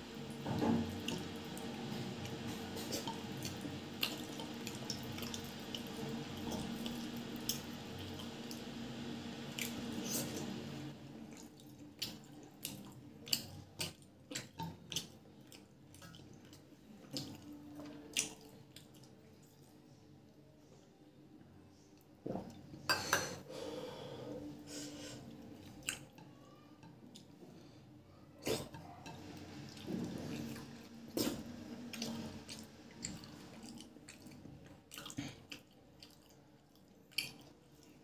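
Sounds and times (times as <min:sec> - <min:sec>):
chewing and wet mouth clicks: 0:31.9 - 0:37.9.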